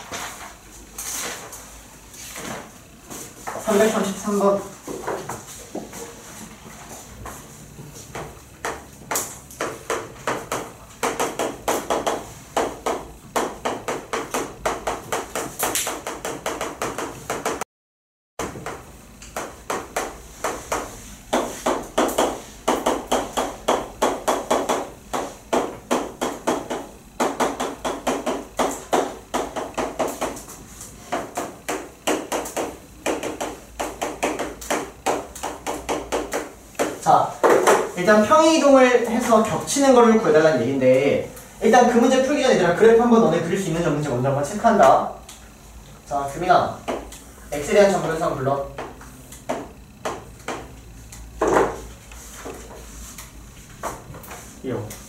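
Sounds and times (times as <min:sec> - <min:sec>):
chalk writing on a blackboard: 0:19.9 - 0:25.6, 0:51.0 - 0:54.6.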